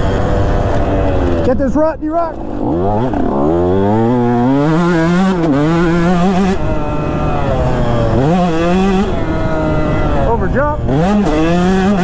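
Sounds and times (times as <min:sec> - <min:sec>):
two-stroke engine accelerating: 0:00.0 - 0:12.0.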